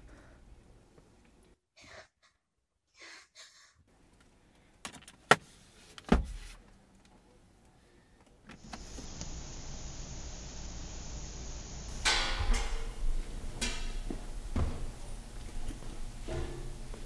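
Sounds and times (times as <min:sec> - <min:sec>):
steady hiss: 0:08.5 - 0:17.0
heavy thump: 0:14.0 - 0:15.0.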